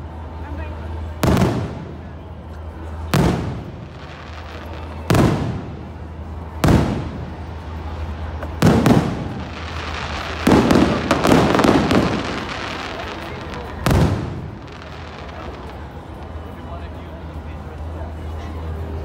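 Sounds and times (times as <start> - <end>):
firework shells booming: 3.1 - 7.5, 8.4 - 15.5.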